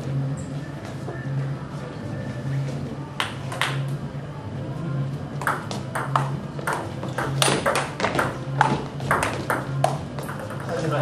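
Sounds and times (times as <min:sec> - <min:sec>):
low steady hum: 0:00.0 - 0:11.0
table tennis ball clicking: 0:05.4 - 0:11.0.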